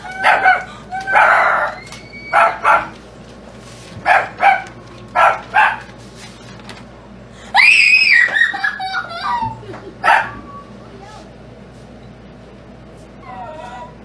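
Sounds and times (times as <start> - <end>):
dog barking: 0.2 - 3.0, 4.0 - 5.9, 10.0 - 10.4.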